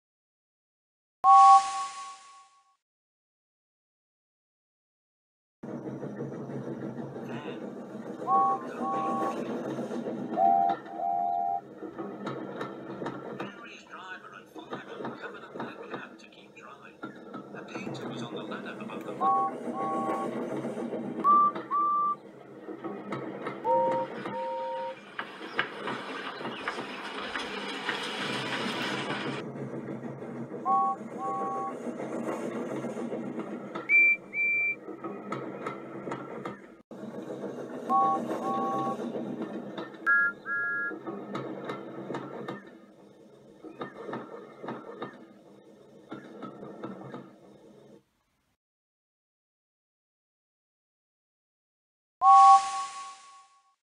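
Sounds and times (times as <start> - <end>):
passing train running noise: 5.6 - 47.6
steam engine whistle toots: 21.3 - 22.2, 30.7 - 31.8, 33.9 - 34.8, 40.1 - 41.0.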